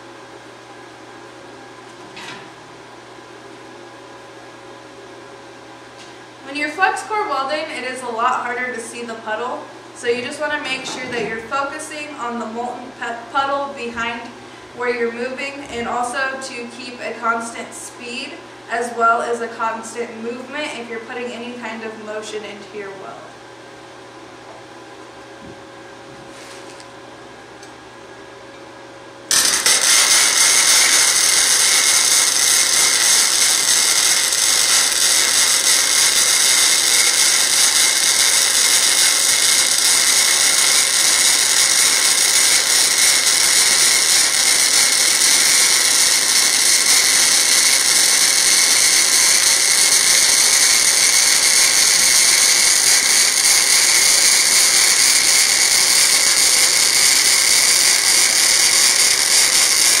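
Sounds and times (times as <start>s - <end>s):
welding arc hissing: 6.0s - 14.4s, 29.3s - 60.0s.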